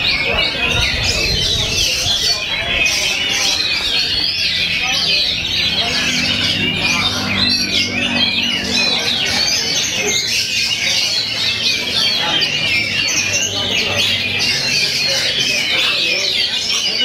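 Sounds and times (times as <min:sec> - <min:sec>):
chorus of songbirds singing: 0:00.0 - 0:17.0.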